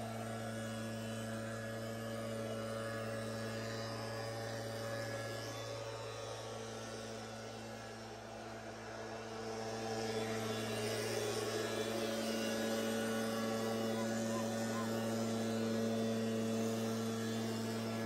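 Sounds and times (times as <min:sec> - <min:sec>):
motor humming: 0:09.5 - 0:18.0.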